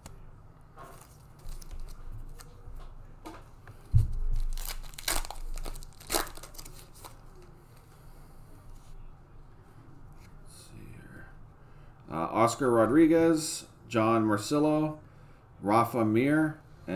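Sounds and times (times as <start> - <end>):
foil wrapper tearing and crinkling: 4.3 - 7.2.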